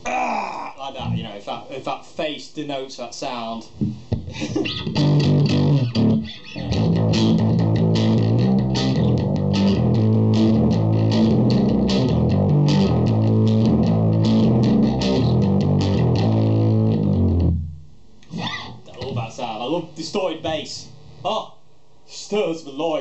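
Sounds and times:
distorted bass guitar riff: 1.0s - 1.3s, 4.7s - 19.2s.

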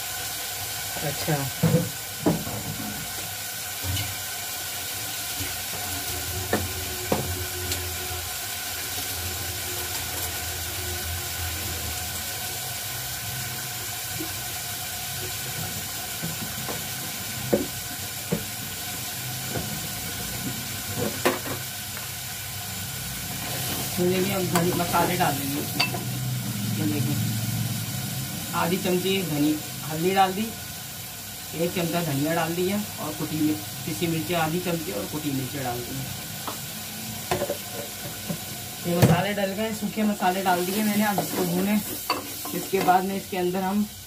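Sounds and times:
meat sizzling in oil: 0.0s - 44.0s.

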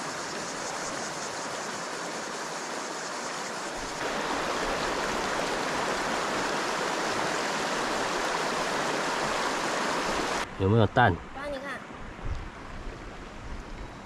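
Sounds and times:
creek water babbling over stones: 0.0s - 10.4s.

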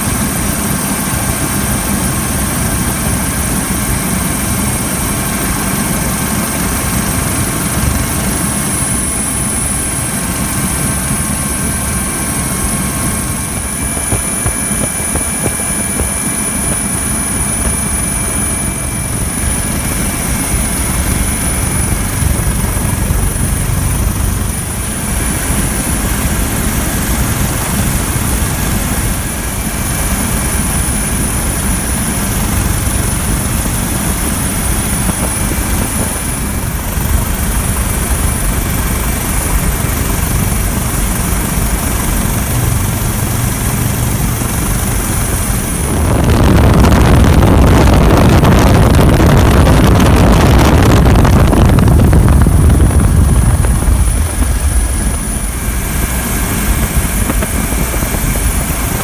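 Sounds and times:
helicopter rotor and turbine din: 0.0s - 59.0s
thin high whine: 2.2s - 59.0s.

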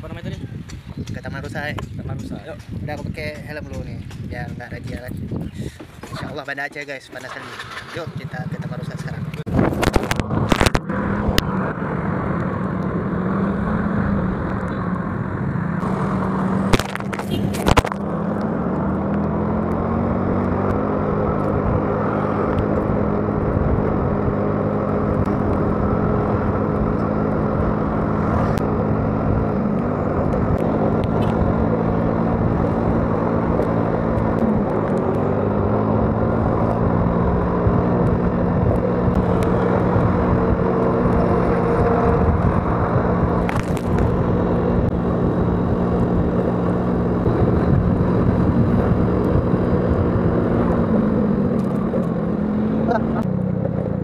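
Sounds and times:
rushing wind and road noise: 0.0s - 54.0s
sharp crackles: 43.4s - 44.2s.

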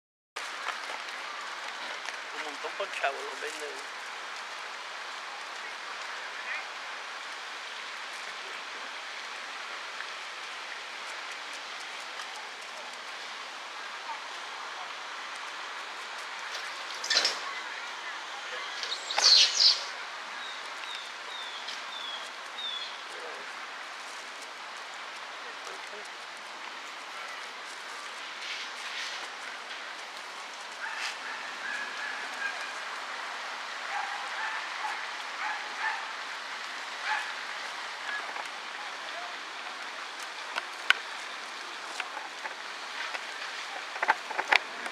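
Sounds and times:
steady outdoor hiss: 0.4s - 44.9s
high chirping calls: 18.5s - 23.2s.

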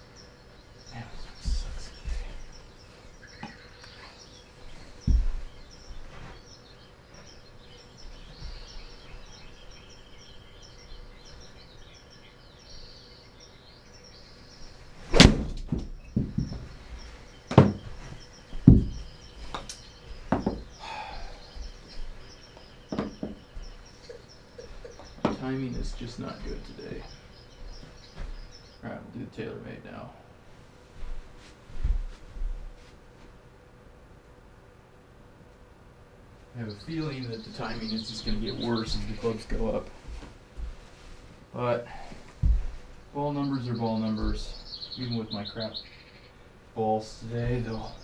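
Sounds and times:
knocks and thumps: 5.0s - 5.5s, 15.2s - 16.8s, 17.5s - 19.7s, 20.3s - 20.7s, 22.9s - 23.7s, 24.8s - 26.6s, 42.4s - 42.8s.

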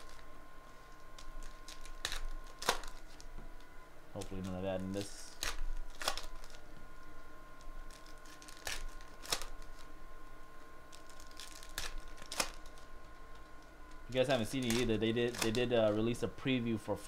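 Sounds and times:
foil wrappers tearing and crinkling: 0.0s - 3.3s, 4.2s - 6.8s, 7.6s - 9.9s, 10.9s - 13.5s, 14.1s - 16.0s.

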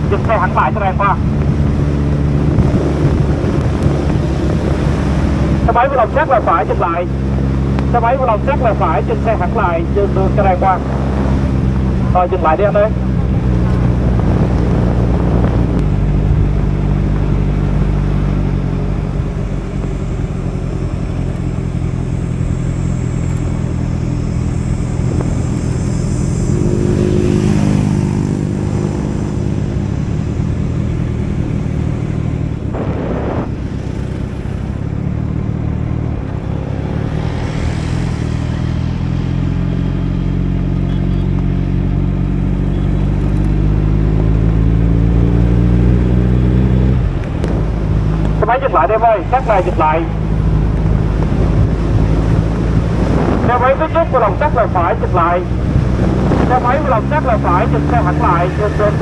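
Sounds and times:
motorcycle engine running: 0.0s - 59.0s
whooshing swells: 23.6s - 34.9s.

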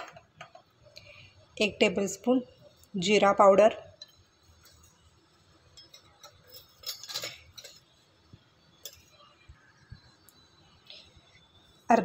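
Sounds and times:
spoon clinking on containers: 5.6s - 8.0s, 8.8s - 9.3s.

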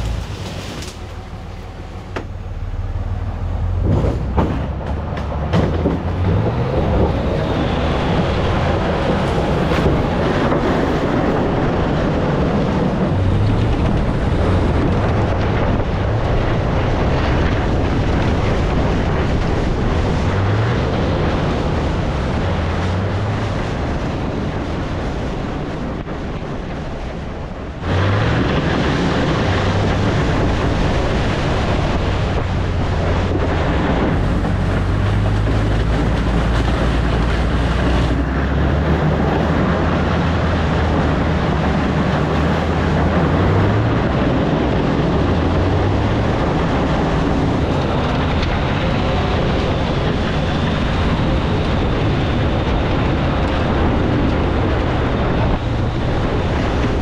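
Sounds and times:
car scraping along gravel: 0.0s - 26.0s
truck engine pulling under load: 0.0s - 57.0s.

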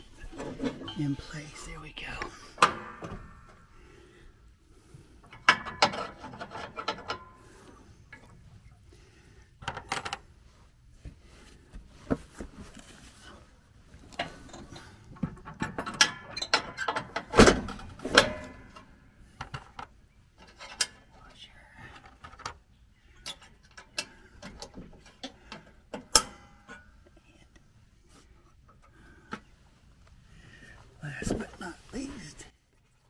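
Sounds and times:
metal parts clanking: 5.2s - 7.5s, 14.1s - 18.9s.

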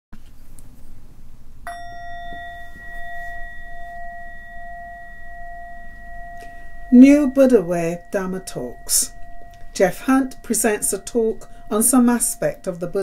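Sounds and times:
meditation bell ringing: 1.7s - 13.0s.

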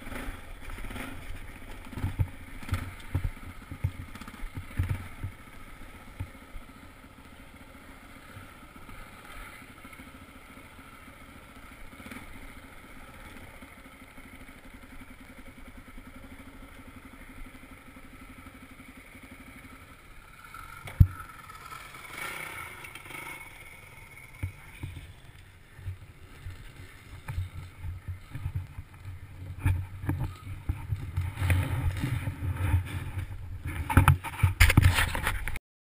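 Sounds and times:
dirt bike engine puttering: 0.0s - 35.6s
low rumbling: 17.3s - 35.2s.

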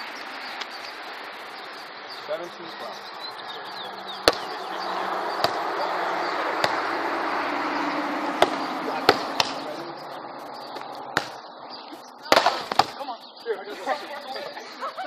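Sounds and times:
steady background hiss: 0.0s - 15.0s
volleyball slaps: 4.2s - 4.6s, 5.3s - 5.8s, 6.5s - 6.9s, 8.4s - 9.8s, 10.8s - 11.4s, 12.2s - 13.0s.

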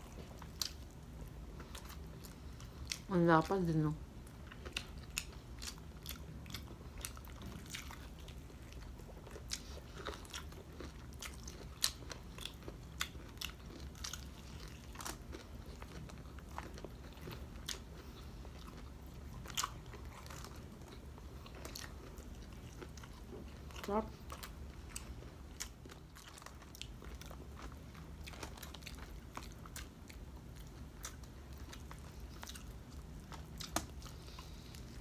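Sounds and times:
crunchy food being chewed: 0.0s - 35.0s.

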